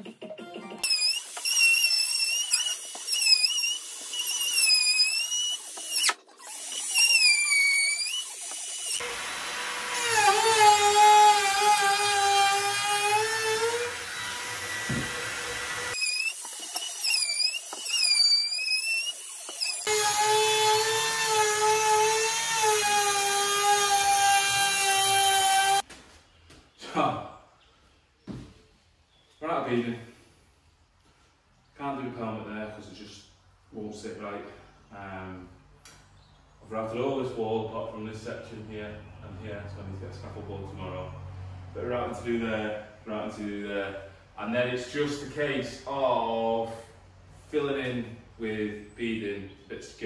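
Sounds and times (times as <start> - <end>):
router whining cutting wood: 0.8 - 25.8.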